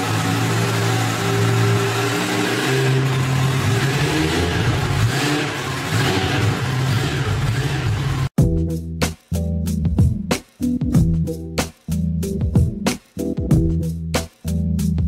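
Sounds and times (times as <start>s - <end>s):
motorcycle engine revving: 0.0s - 8.4s.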